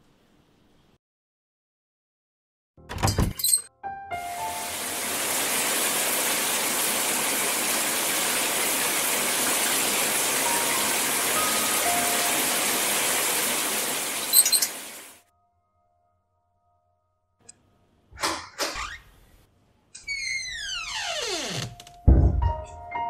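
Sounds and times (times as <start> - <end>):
shower water running: 4.2 - 15.2.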